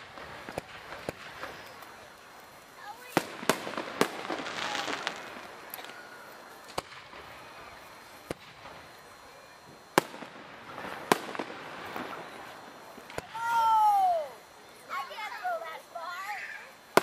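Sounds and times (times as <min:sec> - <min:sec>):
firework shells bursting: 0:00.0 - 0:15.2
firework hiss: 0:00.0 - 0:17.0.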